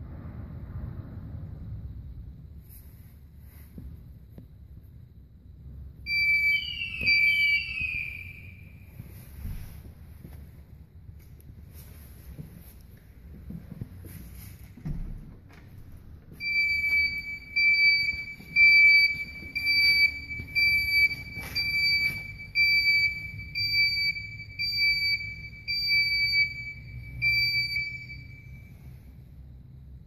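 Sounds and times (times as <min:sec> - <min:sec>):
short high-pitched alarm beeps: 0:06.1 - 0:09.1, 0:16.4 - 0:28.7.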